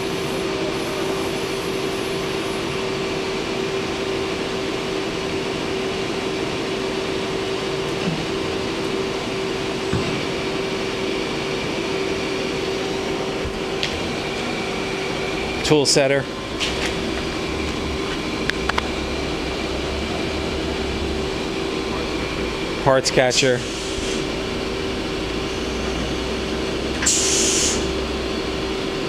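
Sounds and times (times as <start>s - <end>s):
machine hum: 0.0s - 29.0s.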